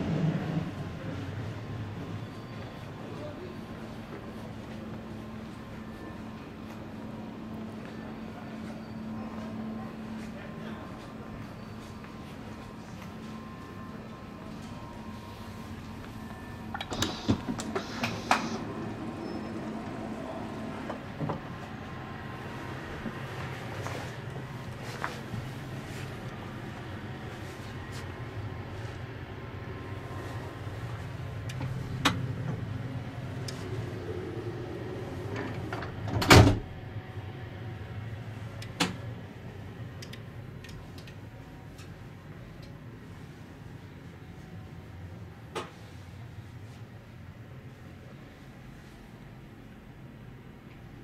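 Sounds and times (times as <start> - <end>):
low train hum: 0.0 - 51.0
power door whirring and clicking: 13.3 - 24.5, 30.9 - 37.0.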